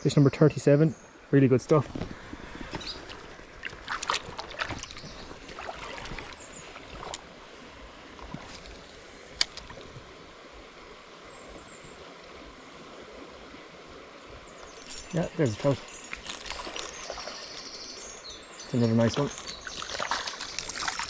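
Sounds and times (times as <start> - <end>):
stream running: 0.0 - 21.0
water splashing: 1.8 - 7.5, 14.3 - 21.0.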